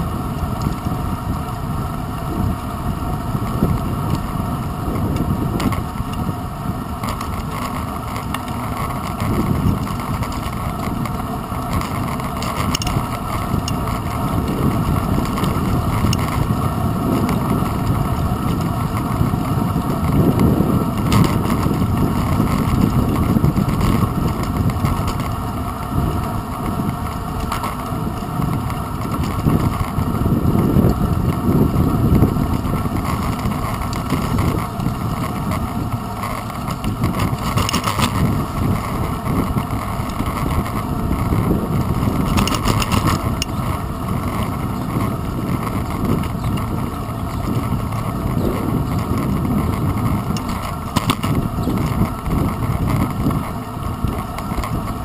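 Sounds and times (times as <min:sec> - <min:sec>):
bicycle road rumble: 0:00.0 - 0:55.0
wind buffeting microphone: 0:00.0 - 0:55.0
short rattles: 0:26.1 - 0:55.0.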